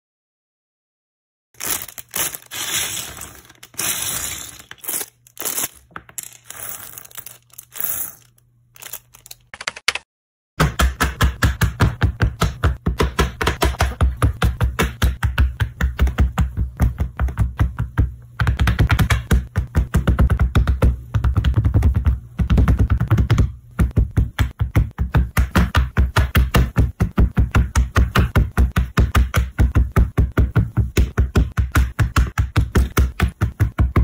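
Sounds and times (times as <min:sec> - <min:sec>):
plastic pieces tapping and clicking: 0:01.6 - 0:10.0.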